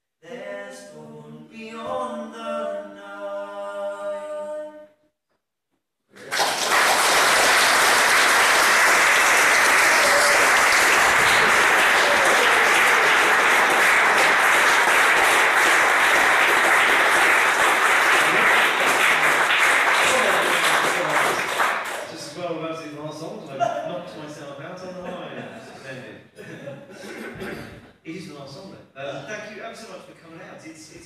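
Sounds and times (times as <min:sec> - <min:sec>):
audience applauding: 0:06.2 - 0:22.3.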